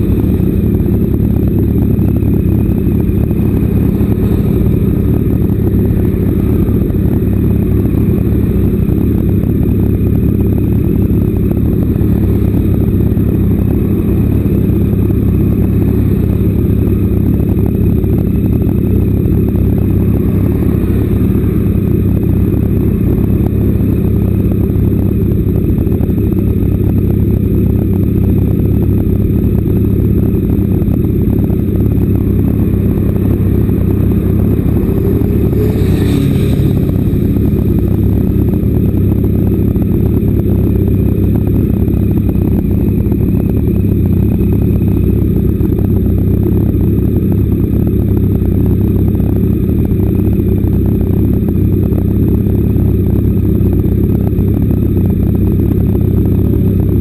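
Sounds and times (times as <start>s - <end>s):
motorcycle engine idling: 0.0s - 57.0s
higher-pitched rush: 31.0s - 41.8s.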